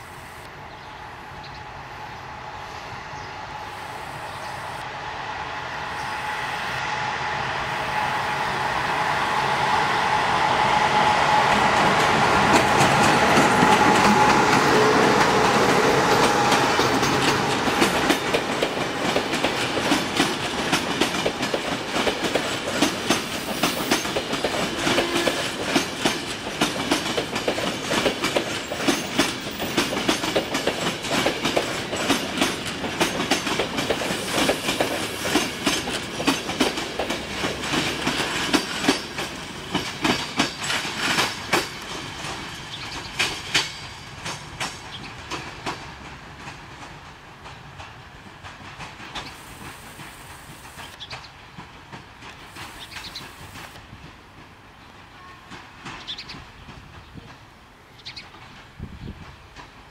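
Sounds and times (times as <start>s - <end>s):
electric locomotive rumble: 0.0s - 23.5s
train wheels clickety-clack: 9.6s - 59.9s.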